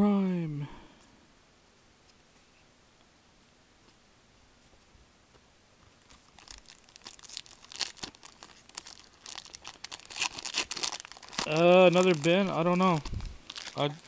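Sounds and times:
foil wrapper crinkling and tearing: 6.0s - 14.0s.

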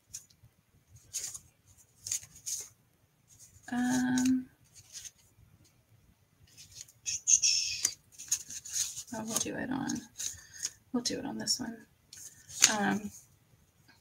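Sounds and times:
paper rustling: 0.0s - 5.3s, 6.5s - 7.0s, 7.7s - 10.8s, 12.1s - 13.2s.

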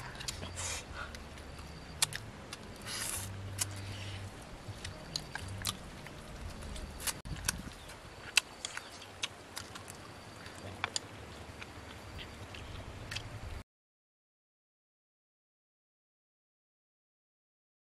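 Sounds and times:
people chewing and lip-smacking: 0.0s - 13.6s.

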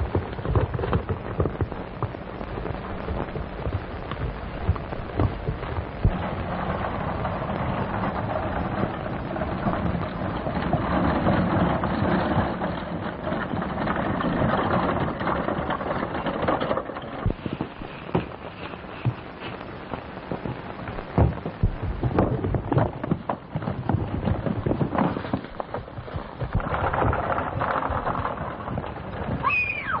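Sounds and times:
wagon rattling over rough trail: 0.0s - 30.0s
wagon thumps and knocks: 3.2s - 19.2s, 21.0s - 30.0s.

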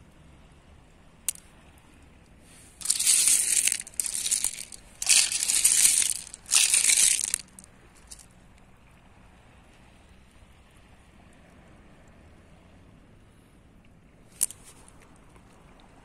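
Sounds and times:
pebbles crunching and grinding: 2.7s - 8.2s, 14.4s - 14.6s.

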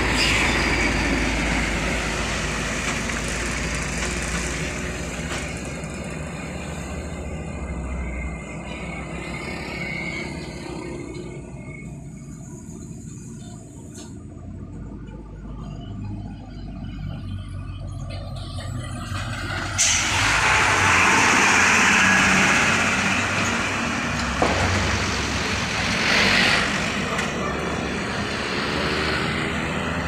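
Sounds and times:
diesel trucks passing: 0.0s - 30.0s.

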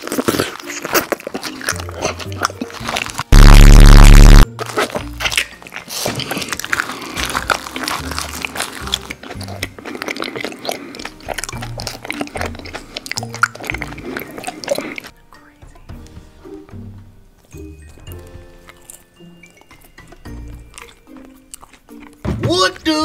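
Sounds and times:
biting and chewing: 0.0s - 15.2s, 17.4s - 22.4s
background music with bass: 3.3s - 4.4s.

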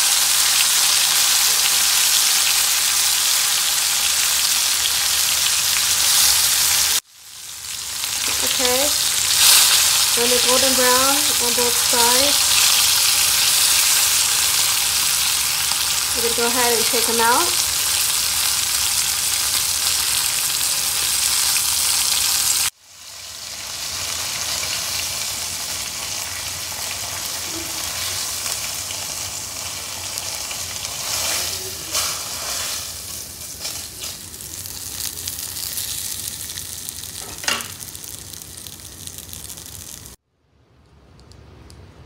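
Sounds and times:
chicken sizzling in hot oil: 0.0s - 40.2s.

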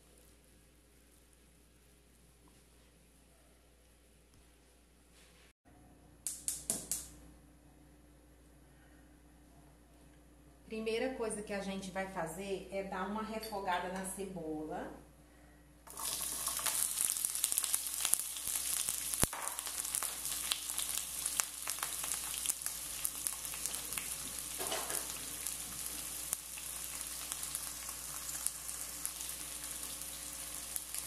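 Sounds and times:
onions sizzling in oil: 15.9s - 31.0s.

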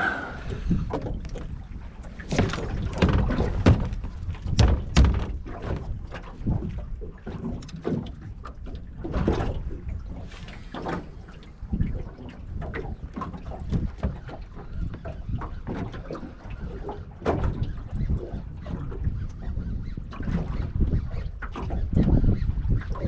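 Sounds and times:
waves knocking against boat hull: 0.6s - 19.0s.

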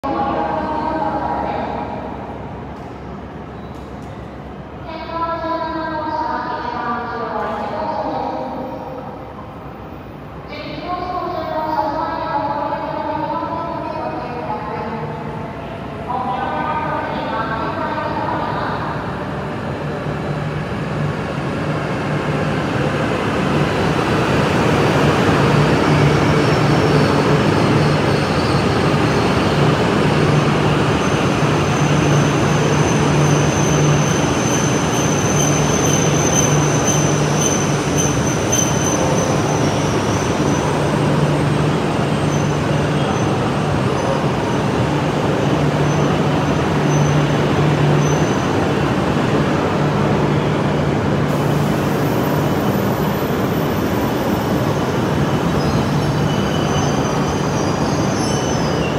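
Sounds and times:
brake squeal: 55.6s - 58.9s.

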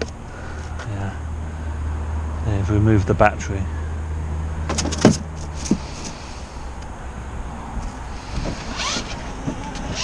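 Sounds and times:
wind noise on microphone: 8.2s - 10.0s.

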